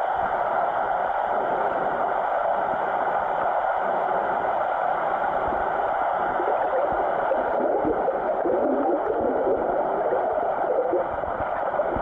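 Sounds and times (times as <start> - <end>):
muffled underwater churning: 5.3 - 12.0.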